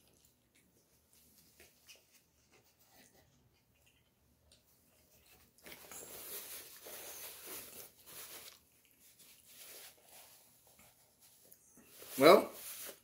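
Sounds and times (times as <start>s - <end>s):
chewing: 0.0s - 6.2s.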